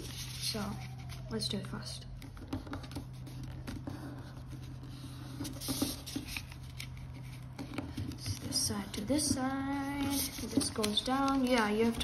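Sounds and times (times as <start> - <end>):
paper rustling and crinkling: 0.0 - 1.5, 5.4 - 12.0.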